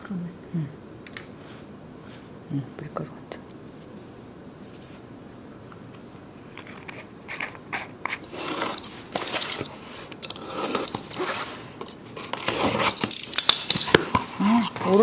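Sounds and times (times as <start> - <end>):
tape crackling: 6.5 - 15.0
cardboard scraping: 6.8 - 15.0
scissors slitting packing tape: 7.3 - 14.0.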